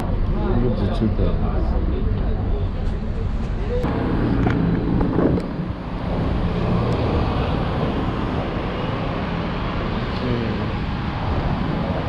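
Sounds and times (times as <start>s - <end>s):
street traffic rumble: 0.0s - 12.0s
wind on microphone: 3.6s - 12.0s.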